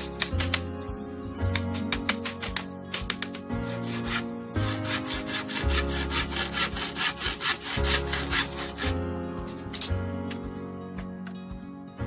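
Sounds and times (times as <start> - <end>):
hand saw cutting bamboo: 0.0 - 0.7, 1.5 - 9.0
background music: 0.0 - 12.0.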